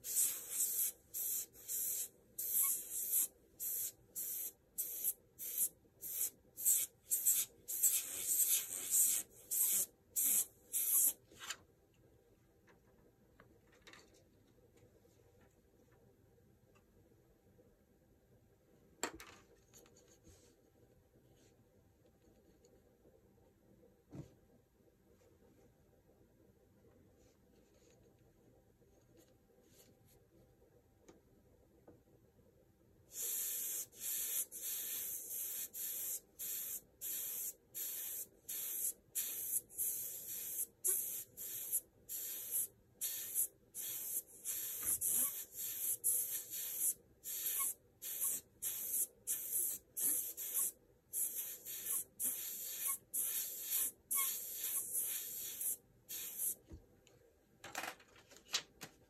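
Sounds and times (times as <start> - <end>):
airbrush hissing bursts: 0.0 - 11.2, 33.1 - 56.6.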